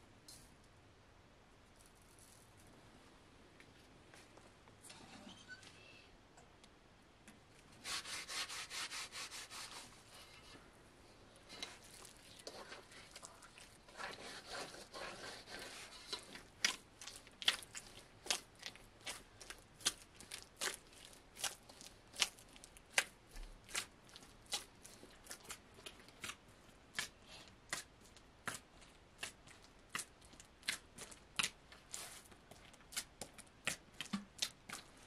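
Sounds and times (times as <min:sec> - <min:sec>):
dough kneading by hand: 0:07.6 - 0:10.7, 0:11.3 - 0:35.0
dough slapping: 0:11.8 - 0:35.0.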